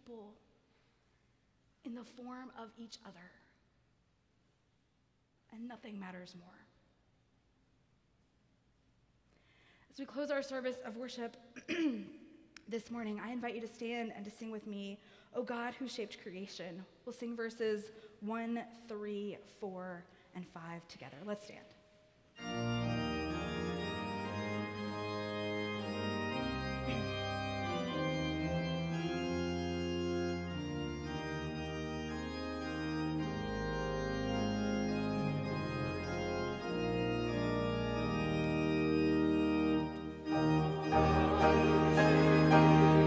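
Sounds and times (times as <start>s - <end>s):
congregation singing: 22.4s - 29.4s, 39.8s - 43.0s
church organ playing chords: 22.4s - 43.0s.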